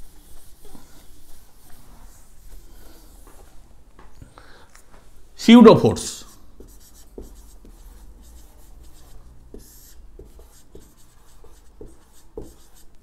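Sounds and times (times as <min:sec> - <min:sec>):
scratchy handwriting strokes: 0:00.0 - 0:03.2, 0:06.2 - 0:13.0.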